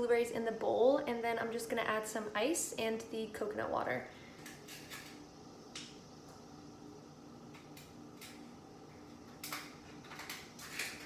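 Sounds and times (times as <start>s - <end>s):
ice cubes cracking in tray: 9.4s - 11.0s.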